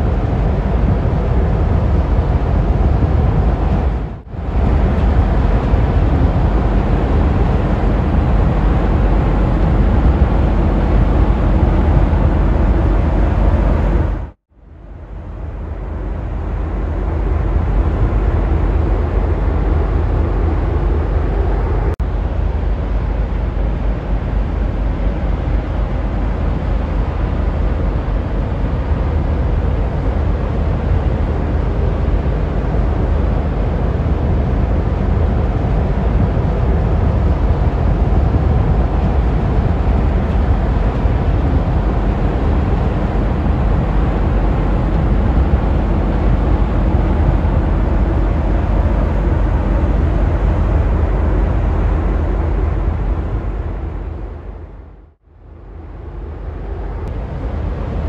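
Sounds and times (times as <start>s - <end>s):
ship low rumble: 0.0s - 58.0s.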